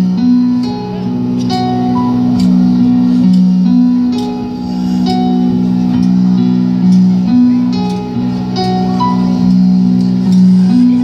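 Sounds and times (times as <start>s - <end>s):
guitars and keyboard chords: 0.0s - 11.0s.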